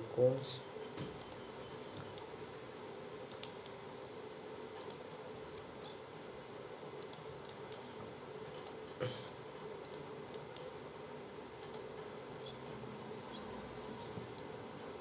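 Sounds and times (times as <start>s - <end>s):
faint steady hum: 0.0s - 15.0s
computer mouse clicks: 1.2s - 1.4s, 3.3s - 3.8s, 4.8s - 5.1s, 7.0s - 7.8s, 8.5s - 8.8s, 9.8s - 10.7s, 11.6s - 11.9s, 14.1s - 14.6s.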